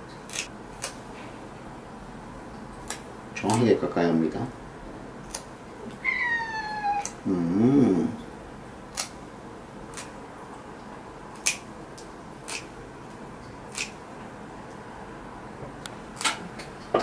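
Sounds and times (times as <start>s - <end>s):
nail clipper snipping claws: 0.3s - 1.0s, 5.3s - 5.5s, 8.9s - 9.2s, 9.9s - 10.2s, 11.4s - 12.7s, 13.7s - 14.0s
cat meowing: 6.0s - 7.2s
low wavering cat vocal: 6.0s - 8.2s.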